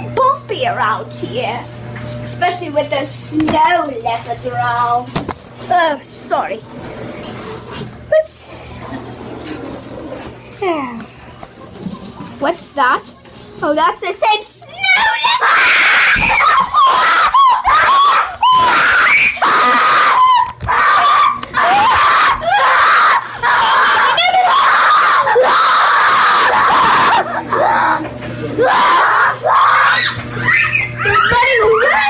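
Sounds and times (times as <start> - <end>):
children screaming in play: 14.7 - 32.0.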